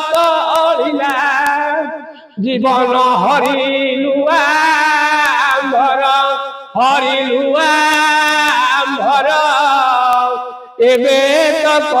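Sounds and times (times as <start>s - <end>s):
man chanting melodically: 0.0s - 12.0s.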